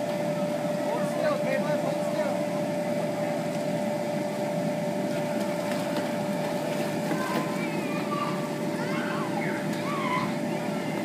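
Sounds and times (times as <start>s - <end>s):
faint high voices: 7.0s - 11.0s.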